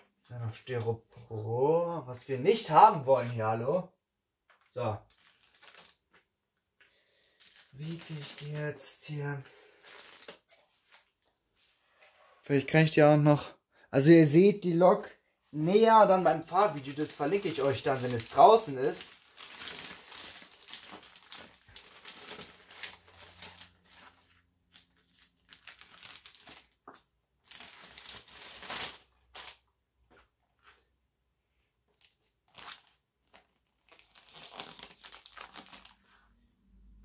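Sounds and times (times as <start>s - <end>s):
plastic film crinkling: 4.4s - 11.3s, 15.6s - 29.7s, 31.9s - 36.3s.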